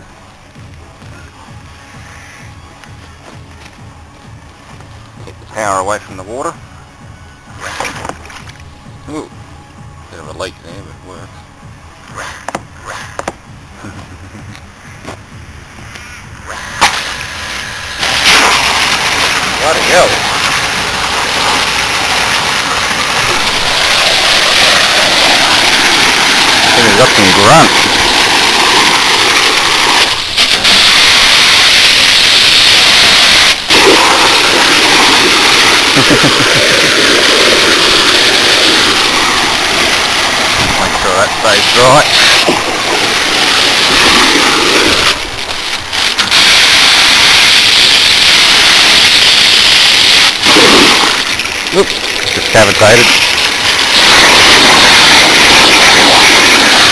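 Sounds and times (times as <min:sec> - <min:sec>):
electric pump running: 0:00.0 - 0:56.9
water jet splashing into tub: 0:16.8 - 0:56.9.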